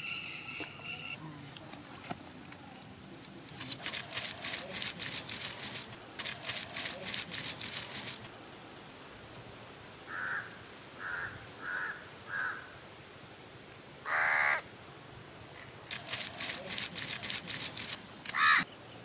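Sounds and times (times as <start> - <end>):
bird calling: 16.0 - 18.8.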